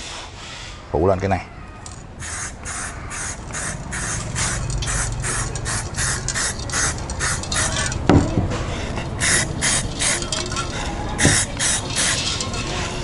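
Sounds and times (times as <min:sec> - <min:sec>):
spray can hissing in puffs: 0:02.2 - 0:07.9, 0:09.2 - 0:10.4, 0:11.2 - 0:12.4.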